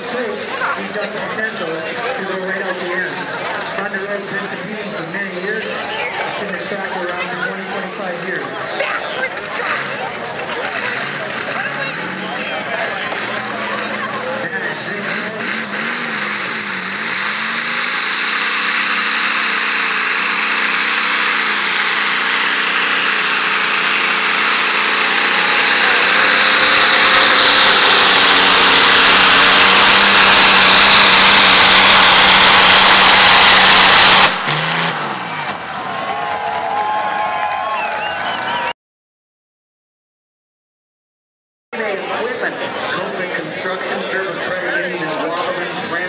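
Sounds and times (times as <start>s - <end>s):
tractor engine at full throttle: 0.0s - 36.0s.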